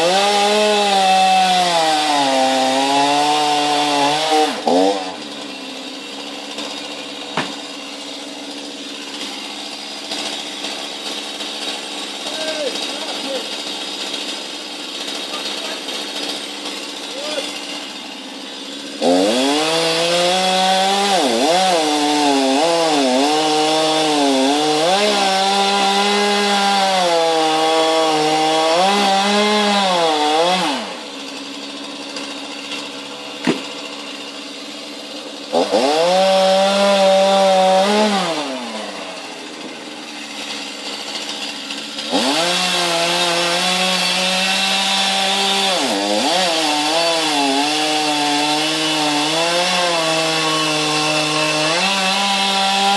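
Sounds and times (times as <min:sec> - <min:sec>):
chainsaw cutting wood: 0:00.0 - 0:52.9
sharp knock: 0:07.4 - 0:07.6, 0:33.4 - 0:33.7.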